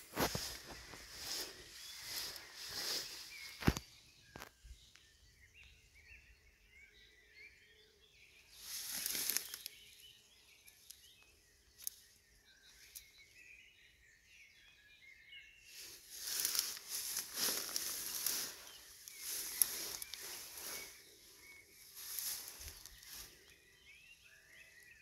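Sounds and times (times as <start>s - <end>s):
rustling noise: 0.0s - 3.8s, 8.6s - 9.7s, 15.8s - 23.5s
distant birds chirping: 0.0s - 25.0s.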